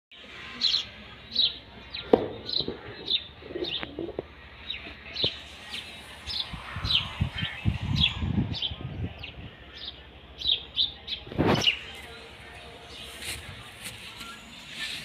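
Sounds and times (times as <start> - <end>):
pigeons cooing: 2.5 - 4.3.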